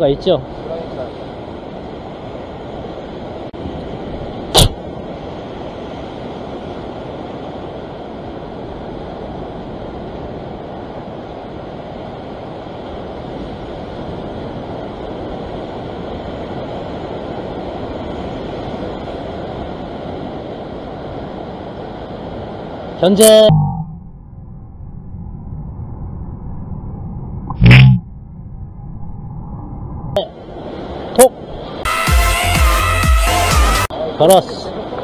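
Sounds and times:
sharp loud knock: 4.6s - 4.8s.

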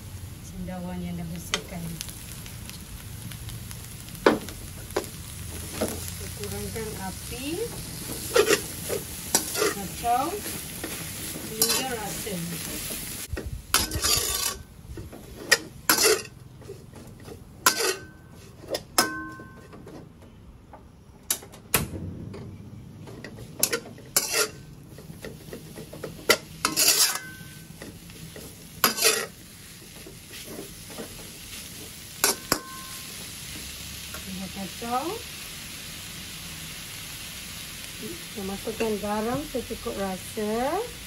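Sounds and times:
low sizzle: 0.0s - 41.0s
metal spatula scraping wok: 5.4s - 20.0s, 23.0s - 35.0s
wok ringing: 8.3s - 10.4s, 11.5s - 12.4s, 17.6s - 18.4s, 19.0s - 19.8s, 26.3s - 27.9s, 32.2s - 33.4s.

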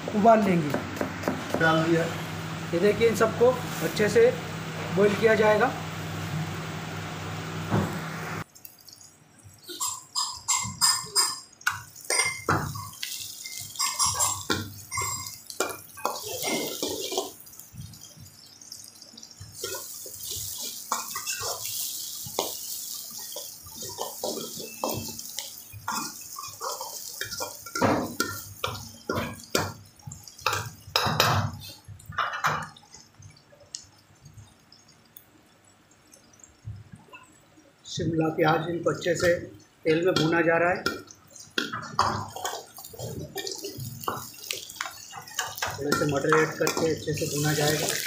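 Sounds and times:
vegetables sizzling in hot oil: 0.8s - 8.8s, 9.6s - 31.9s, 41.1s - 48.0s.

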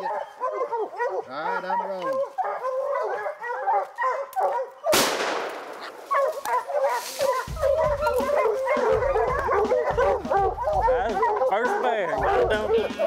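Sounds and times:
hounds baying: 0.0s - 5.0s, 5.8s - 13.0s
rifle shot: 4.9s - 6.0s.

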